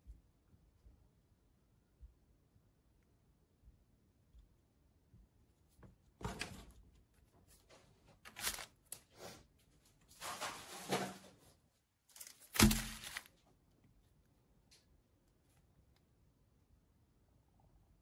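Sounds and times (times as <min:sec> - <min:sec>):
plastic wrappers crinkling: 0:08.3 - 0:09.0, 0:12.1 - 0:13.3
thump: 0:12.5 - 0:13.2.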